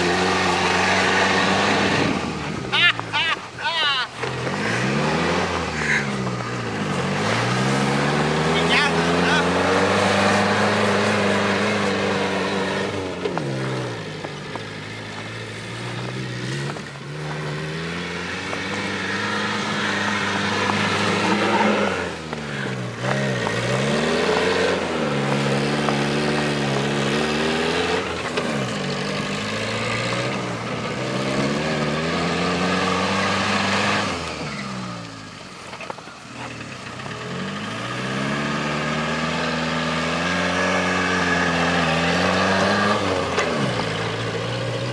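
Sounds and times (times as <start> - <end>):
car engine revving: 0.0 - 44.9.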